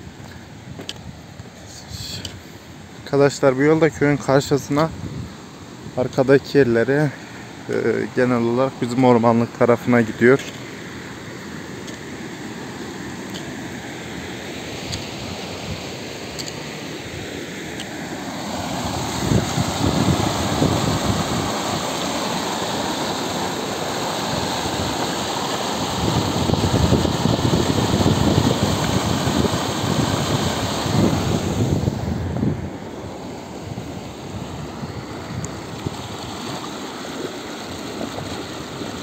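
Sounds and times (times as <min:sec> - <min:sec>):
water rushing through culvert: 0:07.2 - 0:39.0
wind buffeting microphone: 0:18.8 - 0:21.9, 0:25.8 - 0:32.8.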